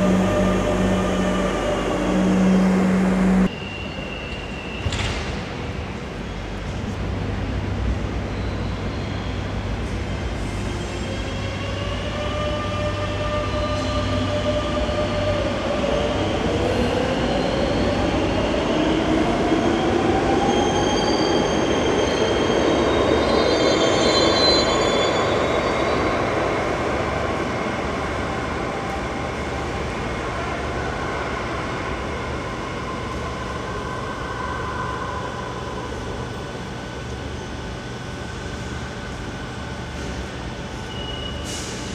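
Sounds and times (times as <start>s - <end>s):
train wheel squeal: 0.0s - 6.7s, 8.2s - 15.2s, 19.8s - 26.6s, 40.7s - 41.9s.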